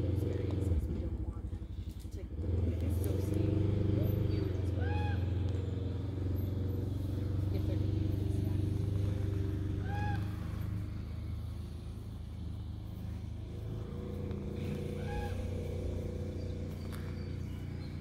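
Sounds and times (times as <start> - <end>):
low engine hum: 0.0 - 18.0
short high calls: 9.4 - 11.6, 14.5 - 17.9.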